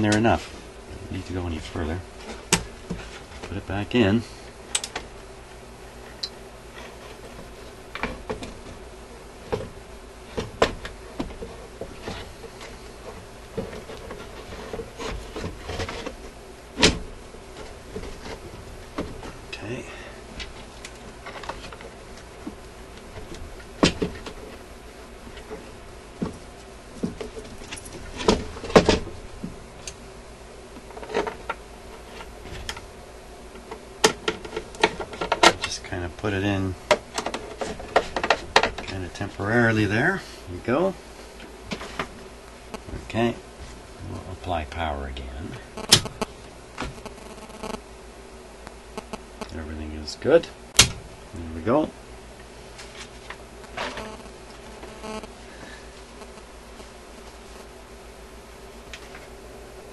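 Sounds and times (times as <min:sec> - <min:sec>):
metal knocking and scraping on wood: 0:34.0 - 0:35.8, 0:36.9 - 0:39.0.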